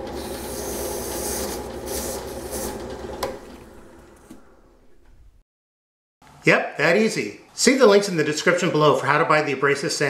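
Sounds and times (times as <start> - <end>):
drill press motor hum: 0.0 - 5.4.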